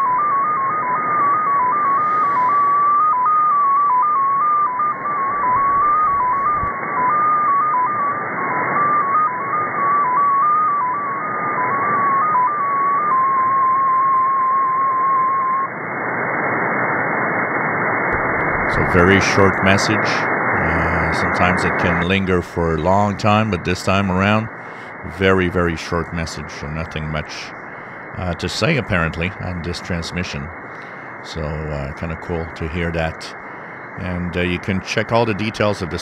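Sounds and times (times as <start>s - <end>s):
tone hopping between pitches: 0.0s - 15.7s
radio static hiss: 0.0s - 36.0s
steady tone: 0.0s - 36.0s.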